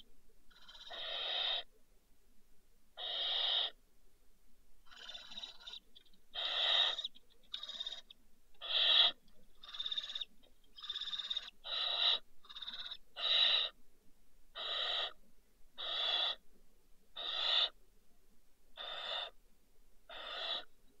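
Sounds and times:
barn owl hissing calls: 0:00.0 - 0:01.7, 0:03.0 - 0:03.8, 0:04.8 - 0:13.8, 0:14.5 - 0:15.2, 0:15.8 - 0:16.4, 0:17.2 - 0:17.8, 0:18.8 - 0:19.4, 0:20.1 - 0:20.8.

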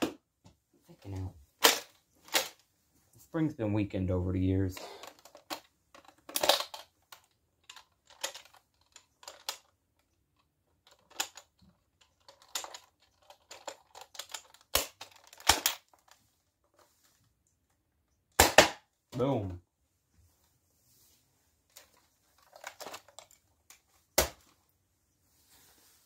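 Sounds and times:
loud plastic clacks: 0:01.6 - 0:02.6, 0:05.0 - 0:10.1, 0:10.8 - 0:16.2, 0:21.7 - 0:24.5
plastic clicks and rattles: 0:05.0 - 0:16.2, 0:21.7 - 0:24.4.

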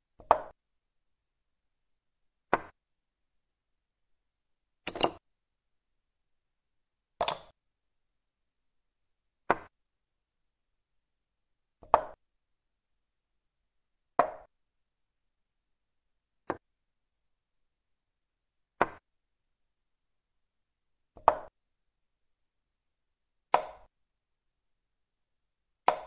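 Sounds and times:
chess piece click on board: 0:04.9 - 0:05.2, 0:07.2 - 0:07.5, 0:21.2 - 0:21.5, 0:23.6 - 0:23.9.

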